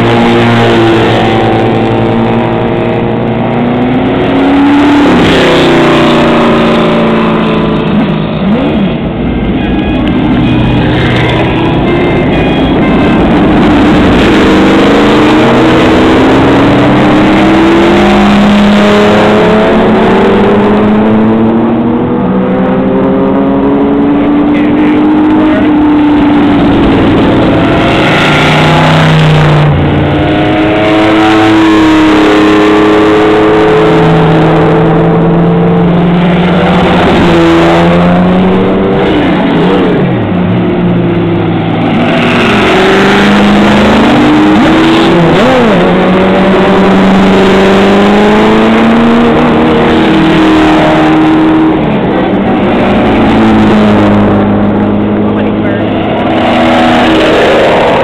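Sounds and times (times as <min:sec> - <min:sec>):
race cars revving past: 0:00.0 - 0:58.0.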